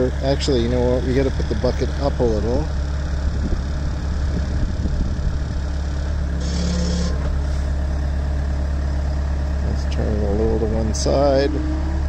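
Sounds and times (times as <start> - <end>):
diesel engine running: 0.0 - 12.0
short hydraulic hiss: 6.4 - 7.7.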